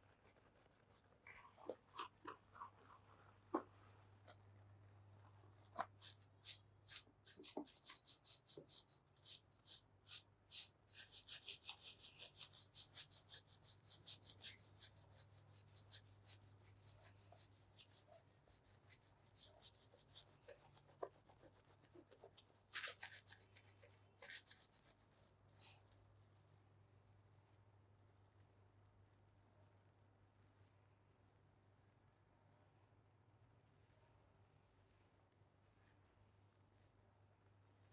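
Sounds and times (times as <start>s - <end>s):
fingers scrubbing scalp: 5.8s - 25.0s.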